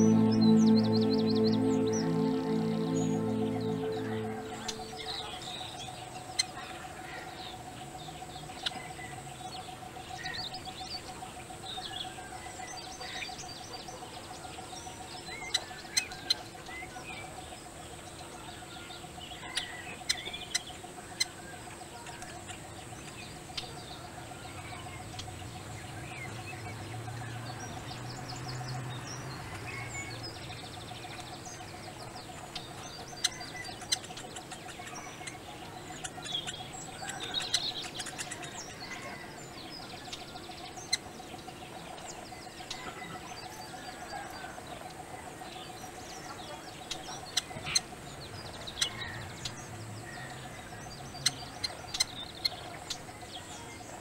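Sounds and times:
faint steady hum: 0.0s - 6.2s.

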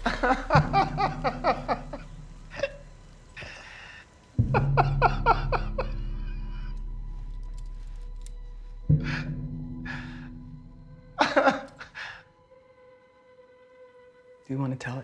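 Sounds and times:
man laughing convulsively: 0.0s - 2.8s, 4.4s - 6.8s, 11.2s - 12.2s
low sustained musical drone: 0.0s - 15.0s.

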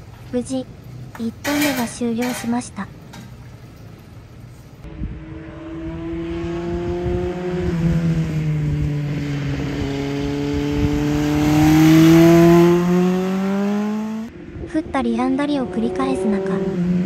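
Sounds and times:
motorcycle engine approaching: 4.9s - 14.6s.

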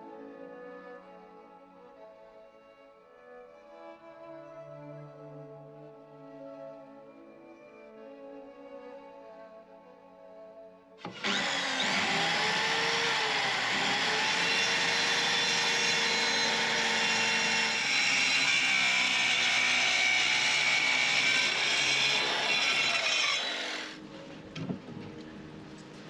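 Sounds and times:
electric planer cutting wood: 11.0s - 24.0s.

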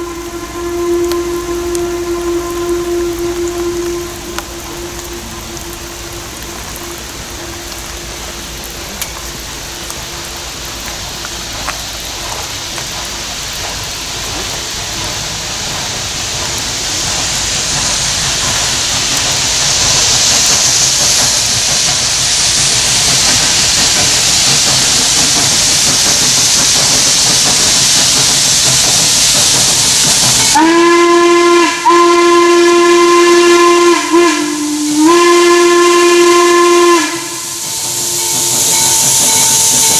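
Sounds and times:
steam whistle blowing: 0.0s - 8.3s, 28.8s - 39.9s
steam locomotive hissing: 0.0s - 39.9s.

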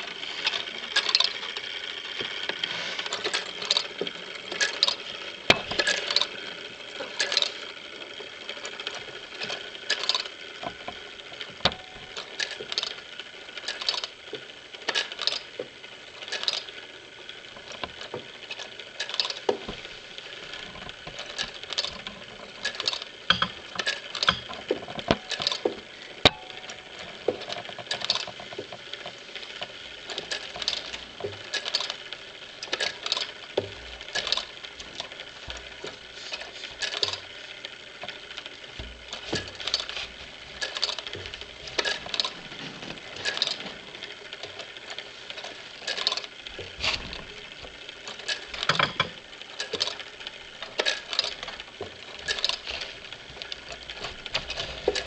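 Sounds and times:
clockwork mechanism whirring: 0.0s - 55.0s
clockwork clicks and taps: 8.6s - 13.0s, 20.6s - 37.3s, 37.9s - 55.0s.

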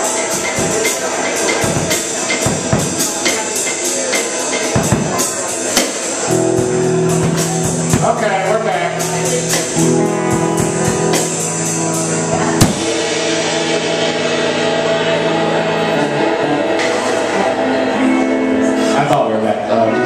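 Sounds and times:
drum hits: 0.0s - 15.1s
bass guitar: 0.0s - 20.0s
electric guitar chords: 0.0s - 20.0s.

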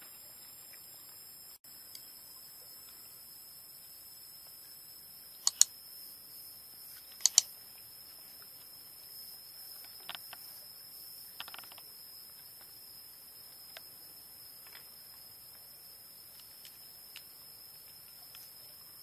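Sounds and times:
computer mouse double clicks: 5.4s - 5.7s, 7.2s - 7.5s.

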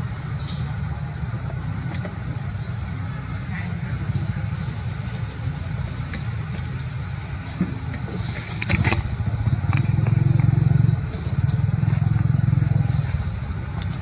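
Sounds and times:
small engine running: 8.5s - 14.0s.

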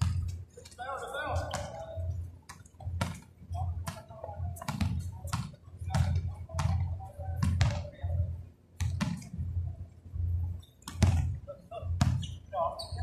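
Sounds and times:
basketball dribbling thuds: 0.0s - 0.4s, 1.4s - 8.0s, 8.8s - 9.4s, 10.8s - 11.4s, 12.0s - 12.4s.

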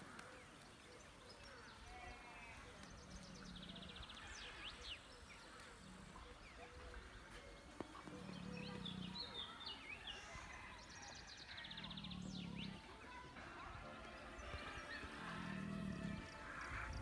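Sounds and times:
small birds chirping: 0.0s - 17.0s
lion snoring: 7.9s - 9.6s, 11.5s - 13.0s, 14.9s - 17.0s.

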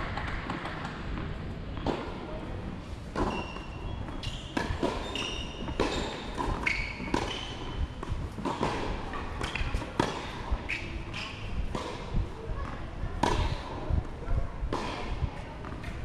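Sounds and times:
tennis balls struck and bouncing: 0.1s - 2.3s, 3.1s - 12.3s, 13.2s - 13.7s, 14.7s - 16.0s
shoe squeaks on court: 3.2s - 7.8s.

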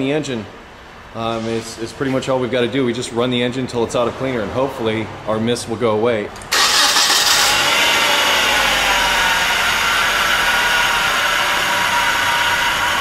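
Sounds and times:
misfiring car engine running: 6.5s - 13.0s.

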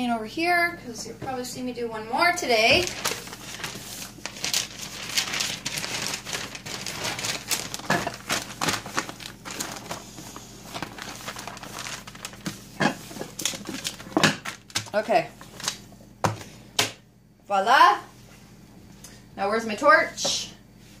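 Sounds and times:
newspaper rustling: 2.5s - 15.8s.

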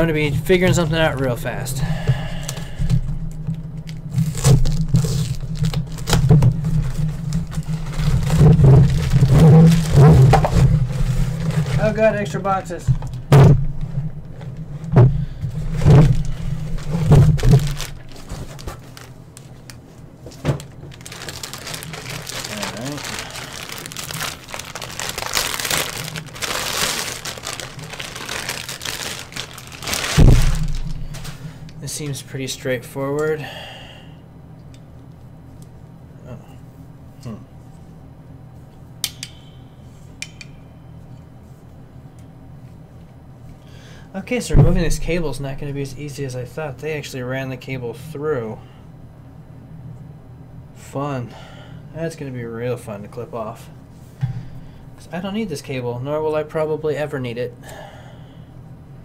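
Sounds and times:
steady low hum: 0.0s - 59.0s
plastic bag crinkling: 2.3s - 12.7s, 15.6s - 19.6s, 20.3s - 31.6s
plastic wrapping rustling: 2.3s - 12.9s, 14.0s - 31.6s
dull thump: 30.2s - 31.0s.

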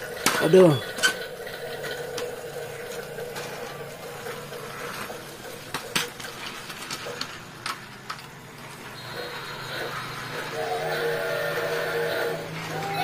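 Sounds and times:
toy mechanism whirring: 0.0s - 13.0s.

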